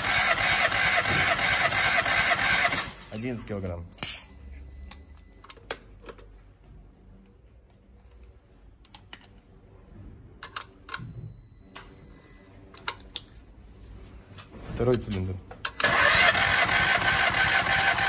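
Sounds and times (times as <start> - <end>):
low steady hum: 3.0 - 15.8.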